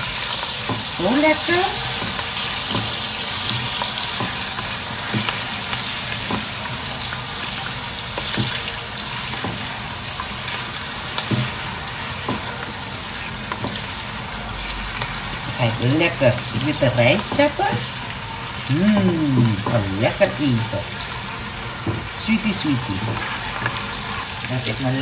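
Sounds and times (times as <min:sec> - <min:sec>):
sausage sizzling in butter: 0:00.0 - 0:25.0
spatula stirring pops and knocks: 0:02.0 - 0:05.4, 0:06.2 - 0:06.7, 0:08.1 - 0:09.7, 0:11.1 - 0:11.6, 0:12.2 - 0:12.7, 0:21.8 - 0:22.2.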